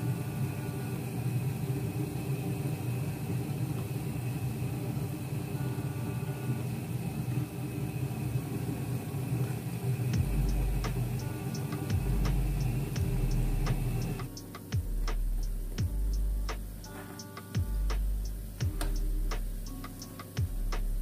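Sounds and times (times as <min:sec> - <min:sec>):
steady low hum: 0:00.0 - 0:21.0
deep bass beat with light ticks: 0:10.2 - 0:21.0.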